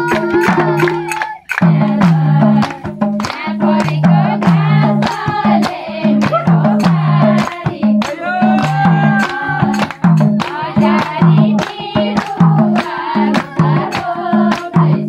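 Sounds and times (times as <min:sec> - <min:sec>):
hand clapping: 0:00.0 - 0:15.0
hand drum beat: 0:00.0 - 0:15.0
person singing folk song: 0:03.7 - 0:15.0.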